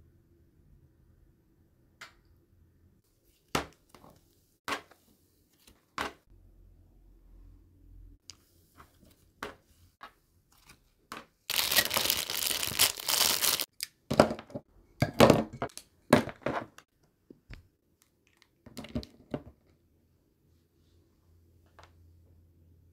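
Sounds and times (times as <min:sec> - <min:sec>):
slime crackling and squishing: 0:11.5 - 0:13.7.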